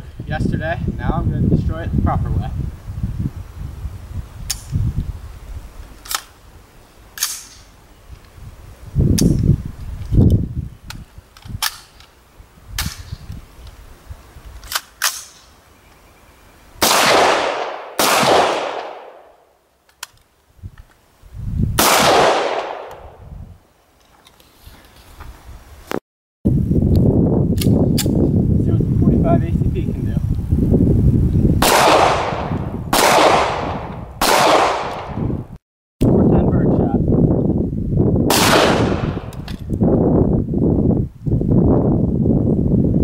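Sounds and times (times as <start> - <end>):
rifle shots: 16.8 - 19.4, 21.8 - 23.2, 31.6 - 35.2, 38.3 - 39.4.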